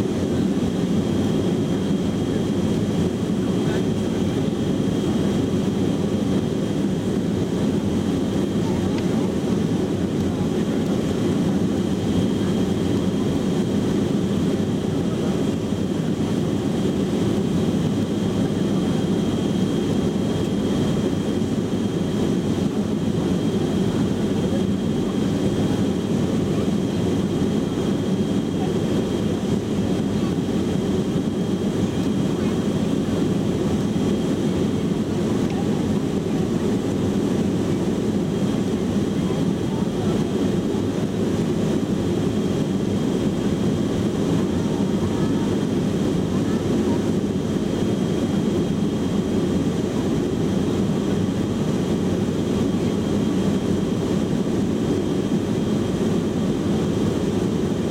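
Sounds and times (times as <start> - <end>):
jet engines and airflow: 0.0 - 57.9.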